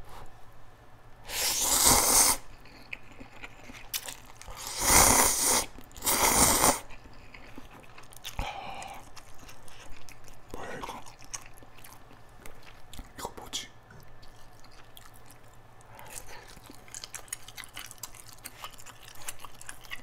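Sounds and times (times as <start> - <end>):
person slurping noodles: 1.3 - 2.5, 4.5 - 6.9
faint chewing: 1.5 - 20.0.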